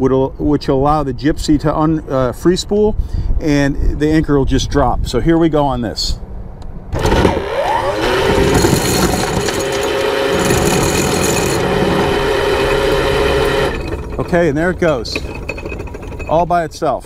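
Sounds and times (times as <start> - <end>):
windlass whine: 6.9 - 16.9
anchor chain rattling out: 7.0 - 16.9.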